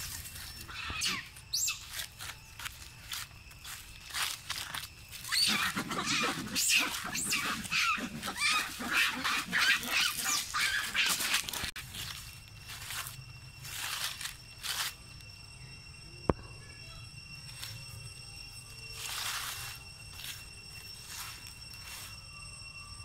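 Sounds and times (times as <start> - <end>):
monkeys shrieking: 0.6 - 2.0, 5.2 - 11.8.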